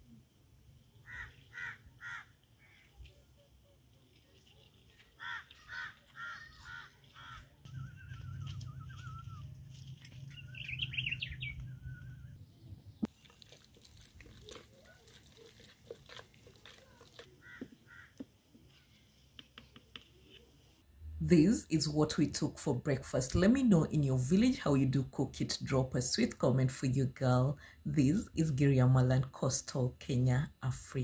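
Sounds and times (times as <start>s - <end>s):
crow cawing: 1.0s - 2.8s, 5.2s - 7.5s, 17.4s - 18.2s
songbird warbling and trilling: 5.2s - 12.4s
low rumble: 7.7s - 13.1s.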